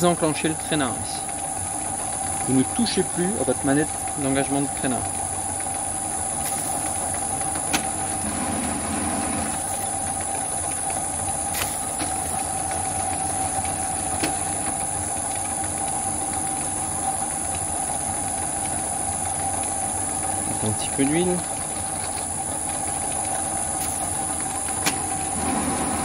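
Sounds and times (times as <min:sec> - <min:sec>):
metal lathe running: 0:00.0 - 0:26.0
high whine: 0:06.1 - 0:15.3.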